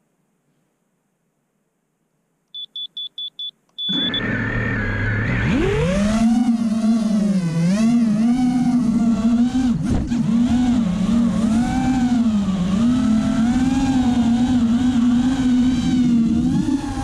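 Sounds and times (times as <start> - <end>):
quadcopter motors buzzing: 3.9 - 17.0.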